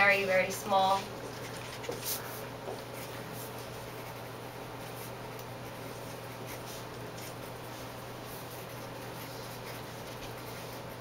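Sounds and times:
low room hum: 0.0s - 11.0s
pen scratching while writing: 3.0s - 11.0s.

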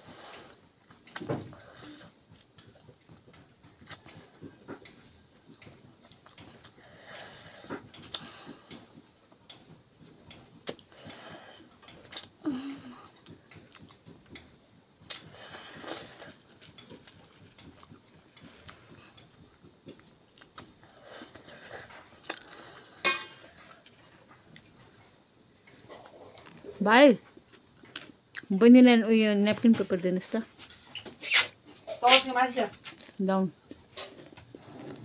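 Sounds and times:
child slurping noodles: 15.3s - 16.4s.

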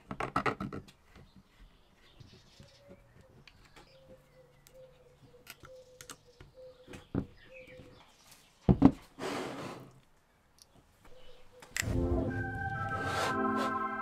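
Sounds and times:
scrape on wood: 9.2s - 9.9s.

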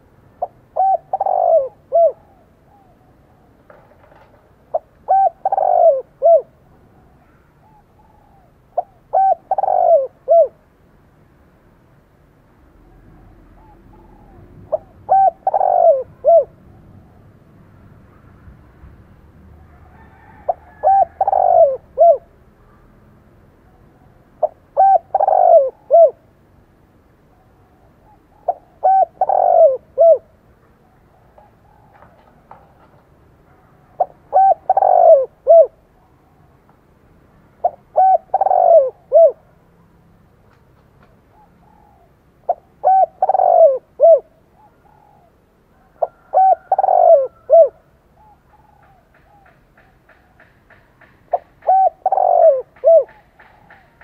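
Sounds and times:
dove cooing: 0.0s - 10.6s, 12.9s - 17.2s, 19.7s - 22.4s, 24.4s - 26.3s, 27.3s - 35.8s, 37.6s - 39.5s, 41.3s - 54.0s.

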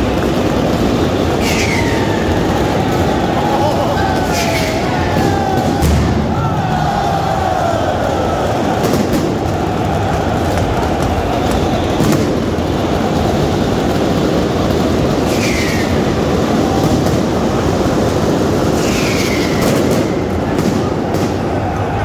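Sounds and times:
stadium crowd roaring: 0.0s - 22.0s
short falling whistles: 1.4s - 2.4s, 15.3s - 16.1s.

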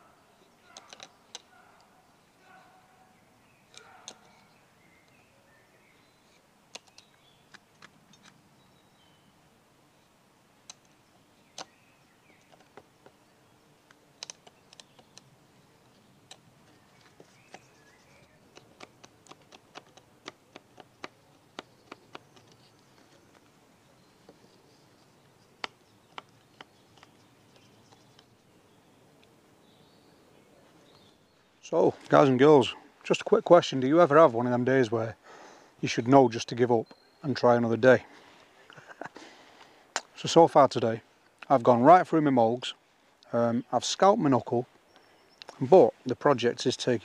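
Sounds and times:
knife cutting wood clicks: 18.5s - 22.6s.

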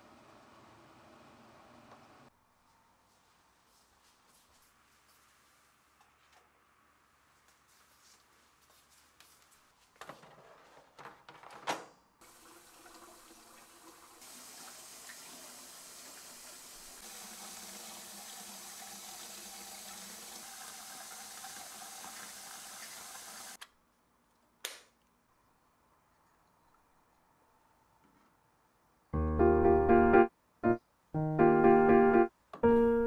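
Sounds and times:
kitchen faucet running: 12.2s - 23.6s.

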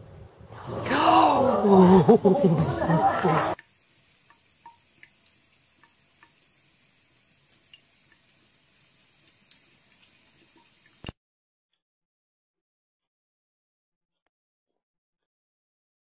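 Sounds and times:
loud voice: 0.7s - 3.6s
water dripping into sink: 3.5s - 11.2s.

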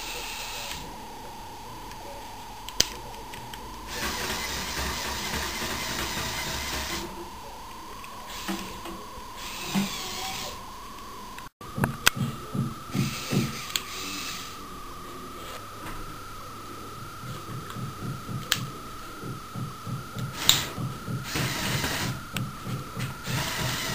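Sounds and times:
electric motors whirring through gears: 0.0s - 1.1s, 2.6s - 16.2s, 16.8s - 23.9s
faint high whine: 0.0s - 23.9s.

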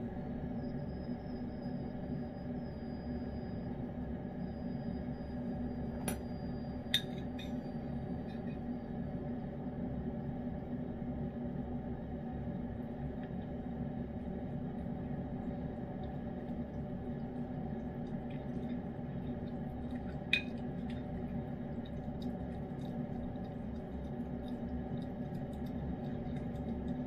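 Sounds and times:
steady low hum: 0.0s - 27.0s
spoon clinking against bowl: 6.9s - 7.6s
cat licking wet food: 16.0s - 27.0s.

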